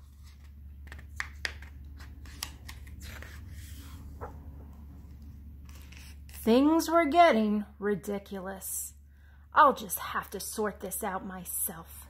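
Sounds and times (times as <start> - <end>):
book pages rustling: 0.0 - 6.4
low steady hum: 0.0 - 12.0.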